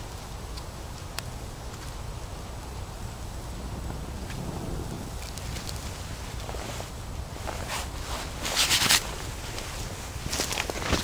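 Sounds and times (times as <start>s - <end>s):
faint fire crackles: 0.0s - 11.0s.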